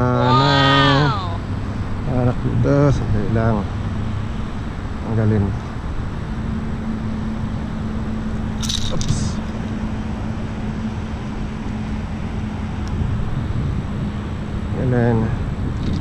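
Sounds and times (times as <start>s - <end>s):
scraping rattle: 8.6s - 9.4s.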